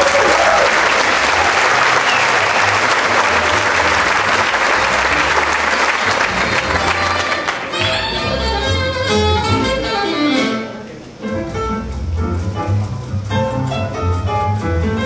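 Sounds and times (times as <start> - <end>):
audience applause: 0.0 - 8.1.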